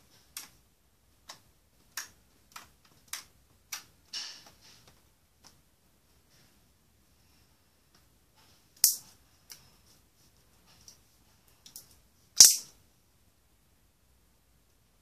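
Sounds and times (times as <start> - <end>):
loud sharp slime pops: 12.4 - 12.7.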